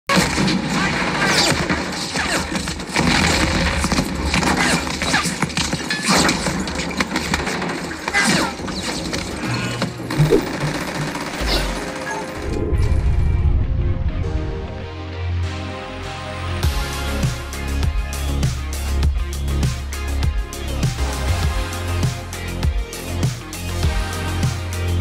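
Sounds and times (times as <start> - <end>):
rapid gunfire: 0.1 - 12.5
film soundtrack music: 0.2 - 25.0
low rumble: 12.4 - 15.0.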